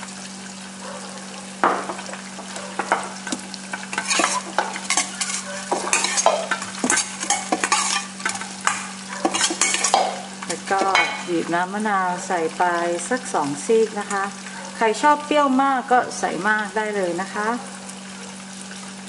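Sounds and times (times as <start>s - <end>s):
metal spoon scraping steel bowl: 3.9s - 11.3s.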